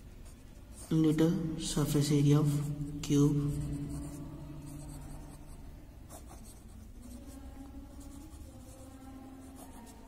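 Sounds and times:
pen scratching on paper: 3.2s - 10.0s.

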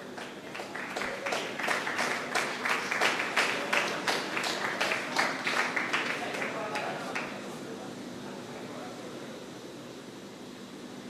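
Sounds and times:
crowd applauding: 0.0s - 7.4s.

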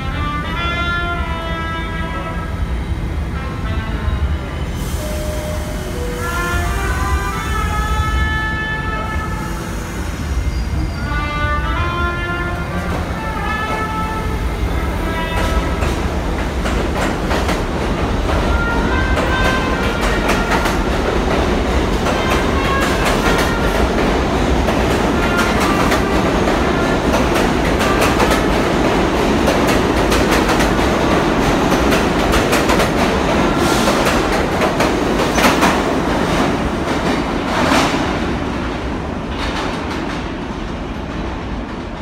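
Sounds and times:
subway train rumbling: 0.0s - 42.0s
train clattering: 14.7s - 42.0s
rail-joint clickety-clack: 15.0s - 42.0s.

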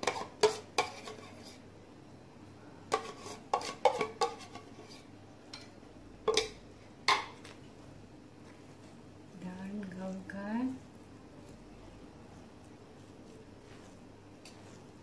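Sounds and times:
metal spoon clinking and scraping: 0.0s - 1.6s, 2.9s - 5.7s.

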